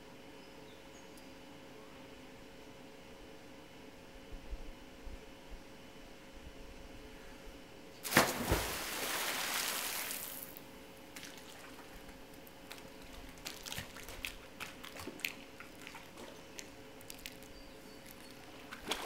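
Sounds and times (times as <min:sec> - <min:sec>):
diver splashing into pool: 0:08.0 - 0:10.5
water lapping: 0:11.2 - 0:16.4.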